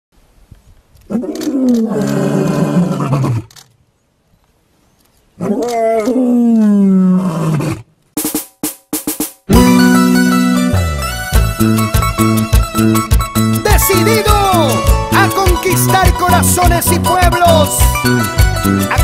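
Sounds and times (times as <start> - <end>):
lion roaring: 1.1 - 3.5, 5.4 - 7.9.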